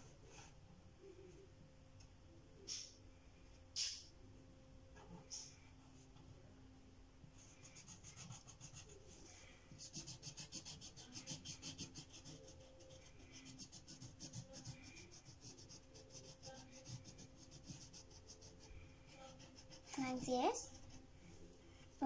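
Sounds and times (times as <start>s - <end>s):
felt-tip marker scribbling on paper: 7.4s - 9.1s, 9.8s - 21.0s.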